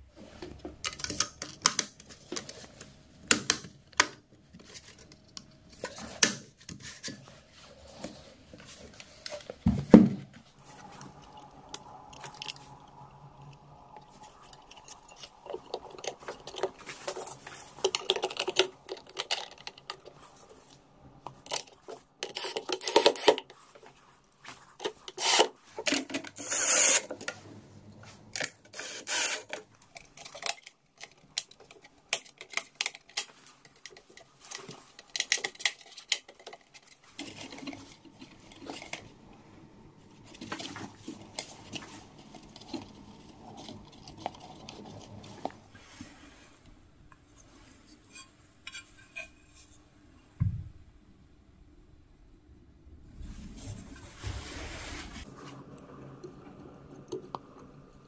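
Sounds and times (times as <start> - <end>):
plastic and metal clicks and scrapes: 0.5 - 7.2, 14.0 - 23.9, 24.8 - 27.4, 28.4 - 39.1
thump: 50.4 - 50.8.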